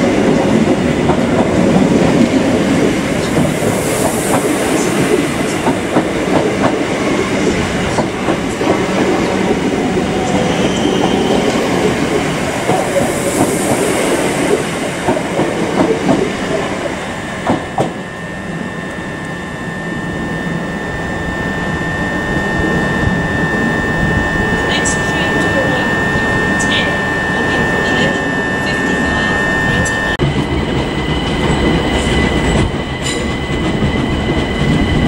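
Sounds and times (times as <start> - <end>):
train wheels clattering on rails: 0.0 - 16.7, 17.4 - 18.0, 30.2 - 35.0
steady high-pitched tone: 0.2 - 35.0.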